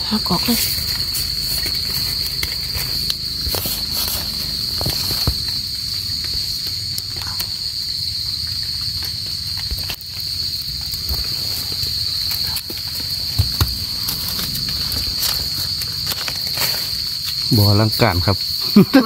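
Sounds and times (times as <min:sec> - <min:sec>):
insects droning: 0:00.0 - 0:19.0
rustling in leaf litter: 0:00.1 - 0:06.5, 0:10.3 - 0:17.8.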